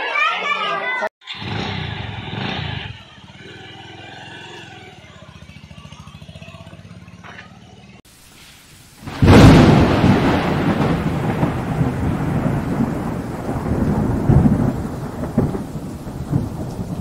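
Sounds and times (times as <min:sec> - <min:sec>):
rain hissing: 0:08.0 - 0:17.0
thunder clap and rumble: 0:09.0 - 0:17.0.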